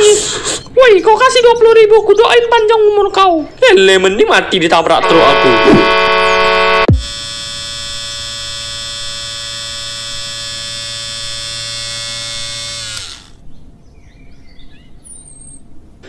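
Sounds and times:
electric hair clippers buzzing: 5.0 - 13.4.

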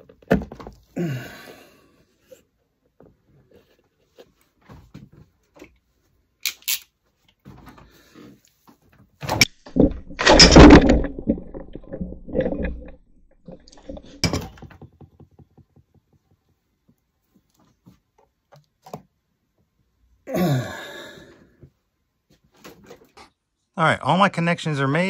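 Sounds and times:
loud thump with clatter: 9.2 - 12.8
knocks and clicks: 9.2 - 16.5.

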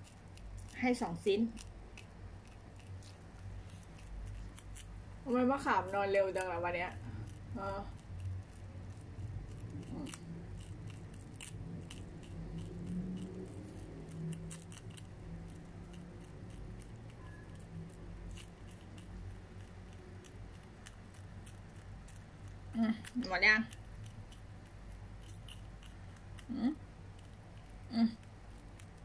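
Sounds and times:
animal gnawing biscuit: 0.0 - 29.0
low steady hum: 0.0 - 29.0.

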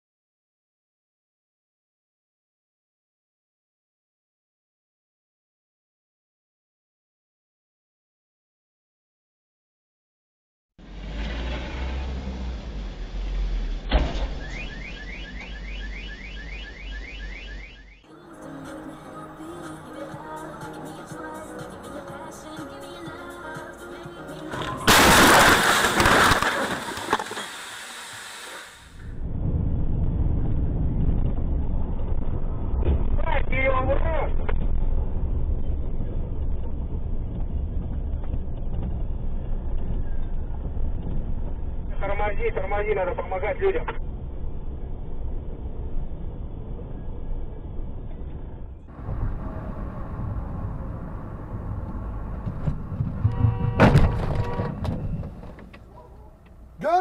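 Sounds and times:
vehicle engine and tyres rumbling: 10.8 - 18.0, 19.2 - 57.0
sharp thump: 13.9 - 14.6, 52.5 - 55.6
car horn: 14.4 - 18.0, 53.1 - 55.2.

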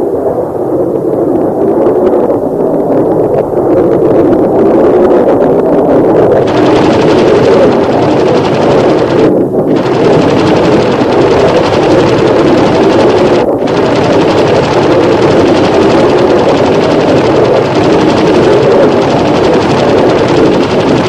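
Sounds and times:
jet engine roar: 6.2 - 21.0.

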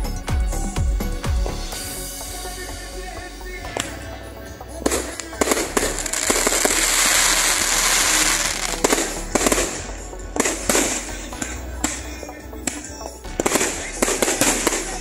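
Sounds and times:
fireworks crackling: 2.4 - 15.0
fireworks bangs: 4.8 - 15.0.

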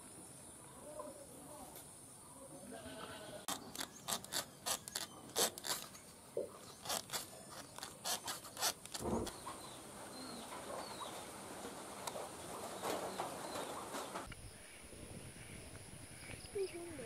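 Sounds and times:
blade scraping bamboo slats: 3.5 - 6.0, 6.6 - 9.3.

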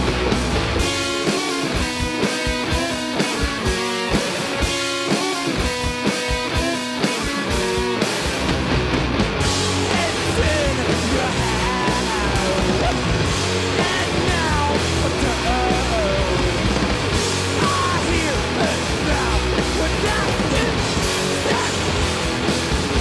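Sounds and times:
rock band playing live: 0.0 - 23.0.

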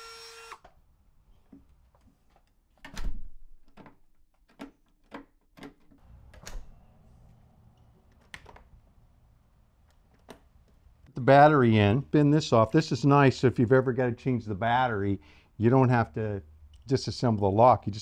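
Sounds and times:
rotary tool whining: 0.0 - 0.7.

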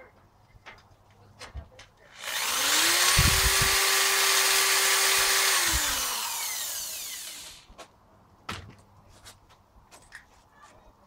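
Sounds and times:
electric drill whining: 2.2 - 7.7.

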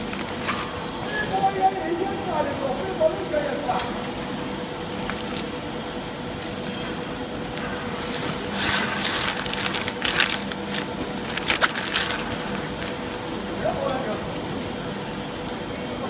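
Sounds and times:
machine motor humming: 0.0 - 16.0
plastic film crackling and rustling: 7.6 - 14.1.

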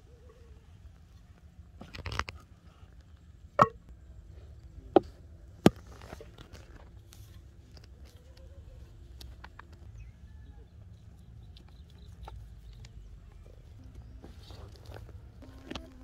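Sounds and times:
bamboo tubes knocking: 3.6 - 3.8.

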